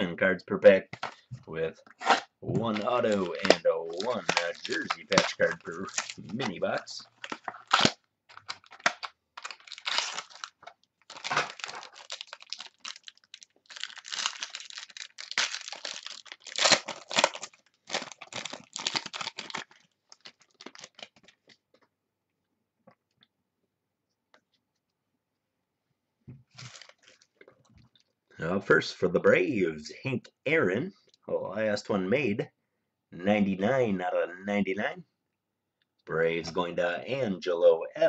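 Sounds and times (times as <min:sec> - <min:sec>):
wrapper tearing and crinkling: 0:02.0 - 0:21.6, 0:26.5 - 0:27.4.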